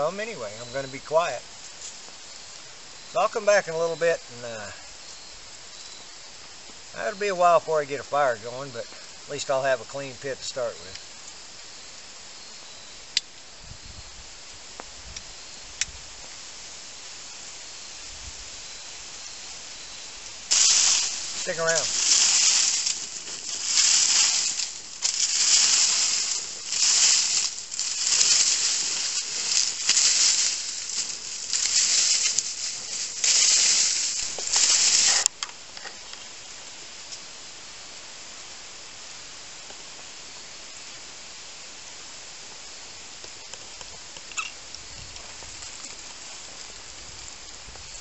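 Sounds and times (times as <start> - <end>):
faint outdoor hiss: 0.0 - 48.0
dry leaves being swept: 16.4 - 35.4.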